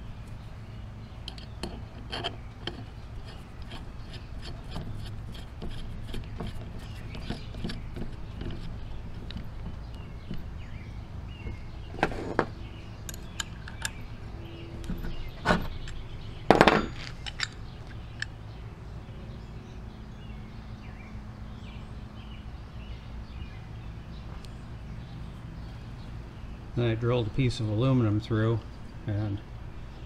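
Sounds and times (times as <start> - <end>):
low steady hum: 0.0 - 30.0
metal parts clinking on workbench: 16.5 - 17.6.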